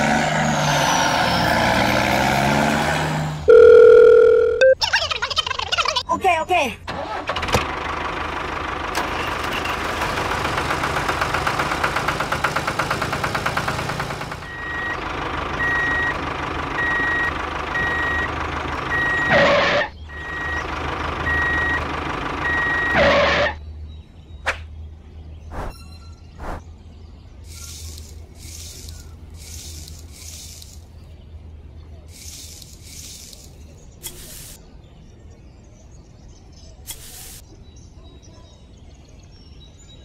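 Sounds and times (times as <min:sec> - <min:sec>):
reversing alarm beeping: 0:03.5 - 0:04.8, 0:14.5 - 0:15.0, 0:15.6 - 0:16.2, 0:16.8 - 0:18.3, 0:18.9 - 0:23.6
diesel truck engine running: 0:06.7 - 0:23.6, 0:27.4 - 0:34.6.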